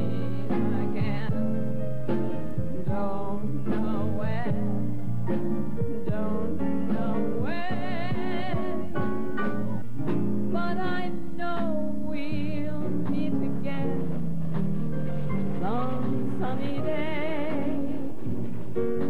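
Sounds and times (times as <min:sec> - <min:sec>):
woman singing with vibrato: 0:00.0 - 0:01.9, 0:02.7 - 0:04.9, 0:06.0 - 0:09.2, 0:10.5 - 0:14.2, 0:15.6 - 0:18.4
instrumental backing: 0:00.0 - 0:19.0.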